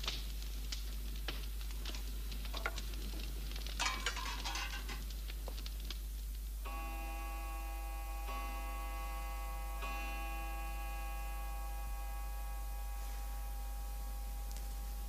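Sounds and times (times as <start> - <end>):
cutlery and dishes clinking: 3.8 - 5.0
clock chiming: 6.7 - 14.6.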